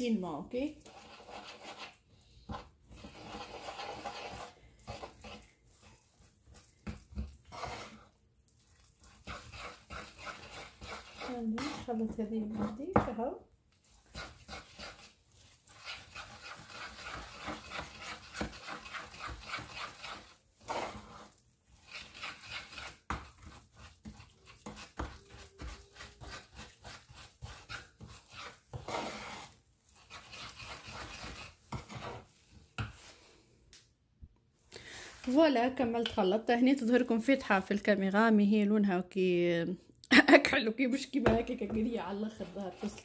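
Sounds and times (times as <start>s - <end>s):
spoon scraping paste in bowl: 0.6s - 33.4s, 41.2s - 43.0s.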